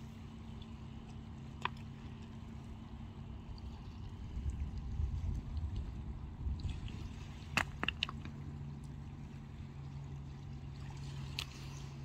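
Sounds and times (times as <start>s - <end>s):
ferry engines rumbling: 0.0s - 12.0s
waves lapping on rocky shore: 0.0s - 12.0s.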